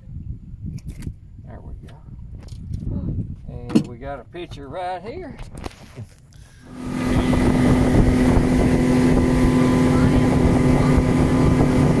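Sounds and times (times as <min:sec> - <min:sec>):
wind on microphone: 0:00.0 - 0:04.6, 0:05.3 - 0:12.0
motorboat engine running: 0:06.6 - 0:12.0.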